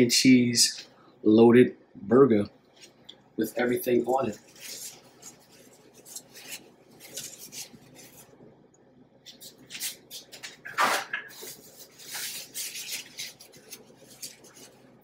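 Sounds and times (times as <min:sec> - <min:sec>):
kitchen rustles and soft knocks: 0:09.3 - 0:13.2.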